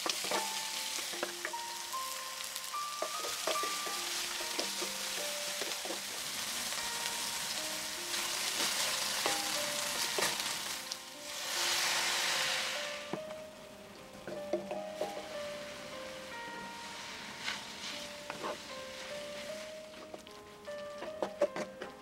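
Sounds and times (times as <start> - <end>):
wooden spatula scraping pan: 0.0 - 1.6, 3.0 - 6.5, 16.7 - 22.0
food sizzling in a skillet: 0.0 - 13.6, 14.3 - 21.6
water hissing on hot pan: 0.0 - 13.6, 14.3 - 21.2.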